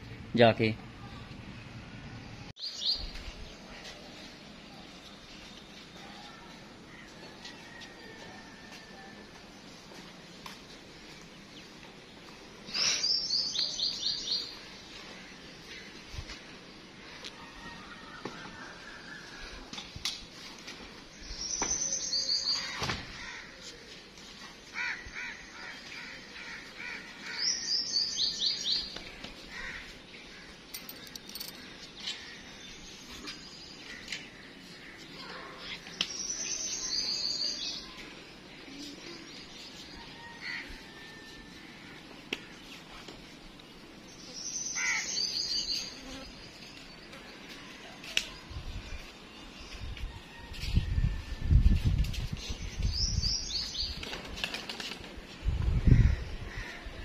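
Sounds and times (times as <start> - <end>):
songbird chirping: 1.0 - 19.8, 21.1 - 22.8, 27.2 - 41.1, 42.0 - 50.8.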